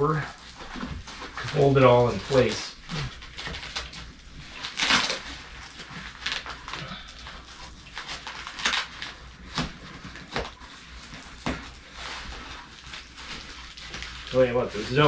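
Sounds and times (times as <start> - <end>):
nylon fabric rustling: 0.0 - 15.0
velcro ripping: 0.2 - 15.0.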